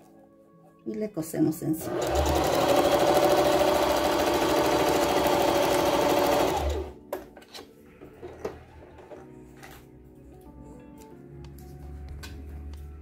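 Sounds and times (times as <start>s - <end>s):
sewing machine stitching: 1.8s - 7.0s.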